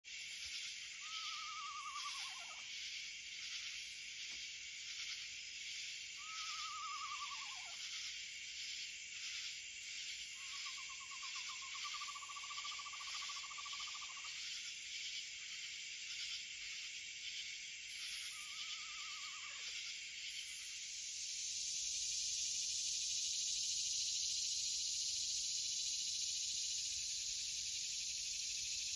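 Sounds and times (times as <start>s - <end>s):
night insect chorus: 0.0s - 28.9s
owl calling: 0.9s - 2.7s, 6.2s - 7.8s, 18.3s - 19.7s.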